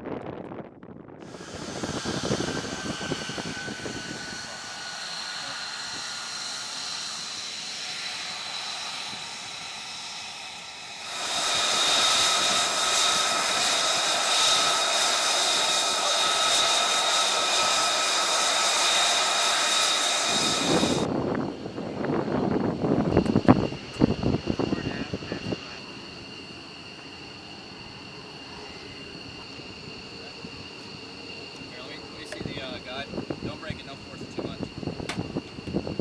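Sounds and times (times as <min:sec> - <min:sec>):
jet engine whining at idle: 0:00.0 - 0:36.0.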